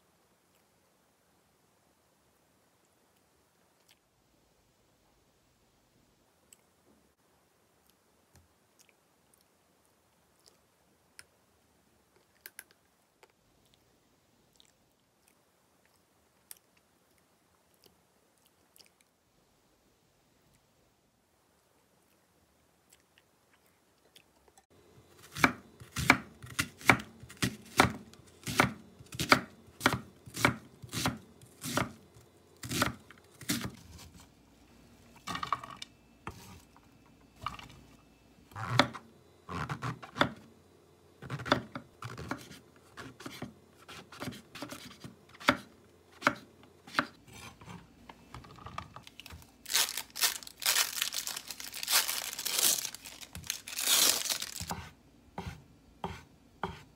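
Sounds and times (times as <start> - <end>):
knife chopping on wooden board: 25.3 - 32.0, 41.3 - 47.8, 54.7 - 56.9
plastic wrapper crinkling: 49.0 - 54.7.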